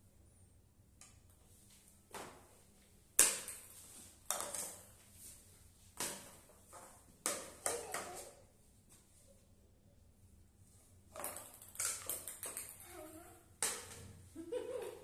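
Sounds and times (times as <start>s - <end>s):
paddle and ball knocking on tiles: 6.0s - 8.2s, 13.6s - 14.2s.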